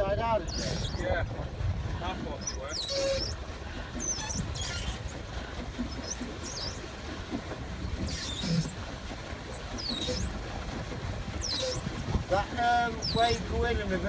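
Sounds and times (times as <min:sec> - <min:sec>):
pedal mechanism squeaking: 0:00.4 - 0:01.4, 0:02.4 - 0:06.9, 0:07.7 - 0:08.8, 0:09.4 - 0:10.5, 0:11.3 - 0:13.6.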